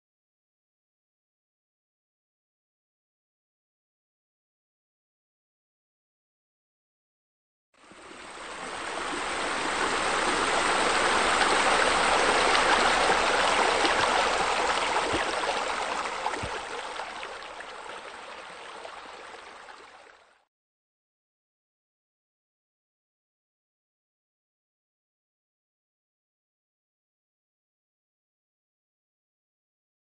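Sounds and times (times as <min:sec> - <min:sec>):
running water rushing: 0:07.8 - 0:20.4.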